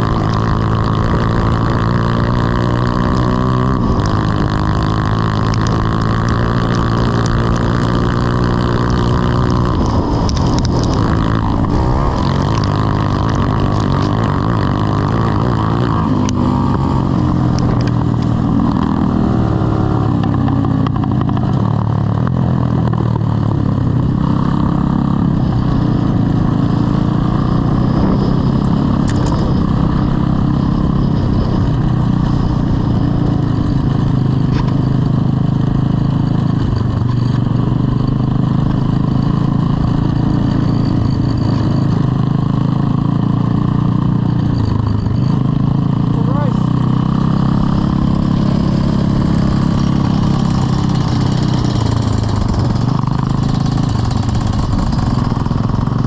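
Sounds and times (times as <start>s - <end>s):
kart engine revving: 0.0s - 22.5s, 37.4s - 56.0s.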